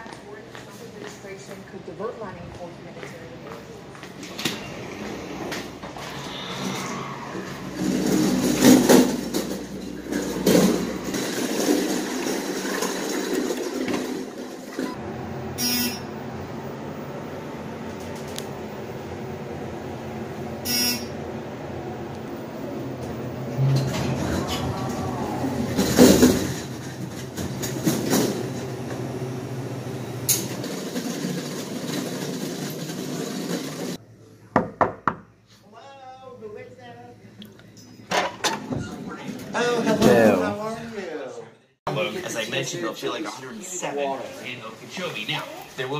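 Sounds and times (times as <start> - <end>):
luggage cart wheels rumbling: 7.5 - 15.2, 22.4 - 34.0.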